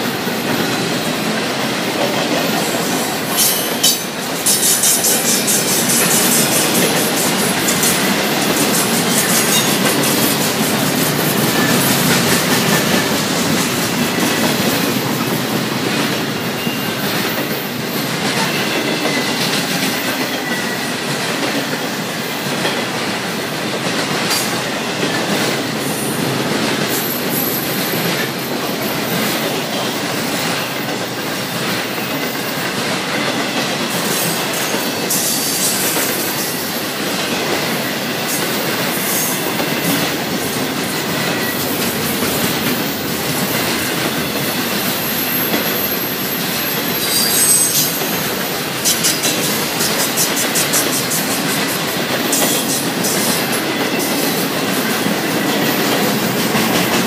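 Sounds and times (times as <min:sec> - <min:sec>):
freight train rolling past: 0:00.0 - 0:57.0
high wheel squeal: 0:44.3 - 0:54.0
wheels clicking over rail joints: 0:47.4 - 0:57.0.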